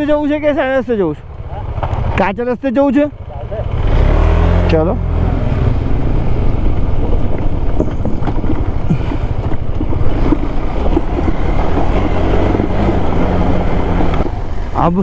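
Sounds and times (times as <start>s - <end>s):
motorcycle engine at low speed: 0.0s - 15.0s
stones clicking and knocking: 7.0s - 14.4s.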